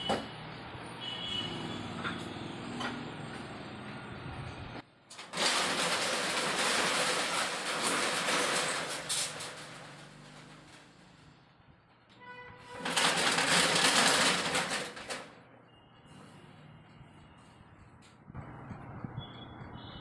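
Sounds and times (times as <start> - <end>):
shop background noise: 0.0 - 20.0
metal roller shutter rattling: 5.0 - 15.6.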